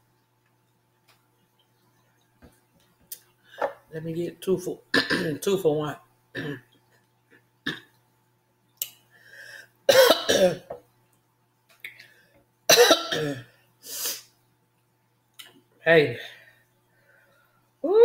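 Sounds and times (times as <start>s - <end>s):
woman coughing and clearing throat: 4.9s - 5.4s, 6.4s - 6.6s, 9.9s - 10.8s, 12.7s - 13.5s.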